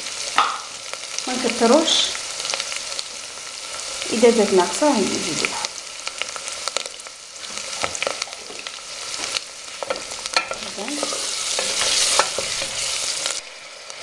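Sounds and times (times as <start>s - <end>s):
food sizzling in oil: 0.0s - 14.0s
wooden spoon stirring and scraping: 9.9s - 13.4s.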